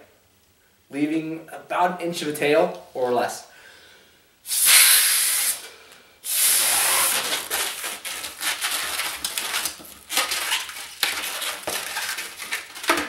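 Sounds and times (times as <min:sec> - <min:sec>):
balloon rubbing and crackling: 0:04.5 - 0:05.6, 0:06.2 - 0:13.0
hand pump hissing air: 0:04.5 - 0:07.6.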